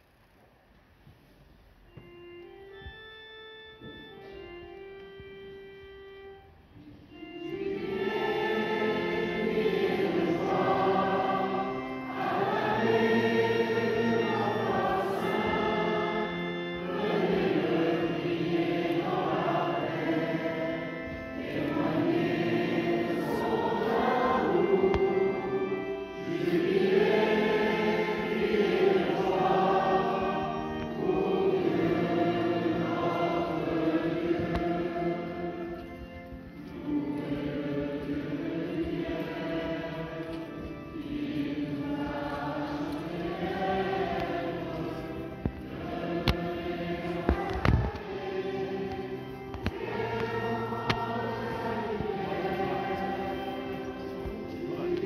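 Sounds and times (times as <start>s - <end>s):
steady sustained tones: 3.4s - 55.0s
choir singing a hymn: 6.8s - 55.0s.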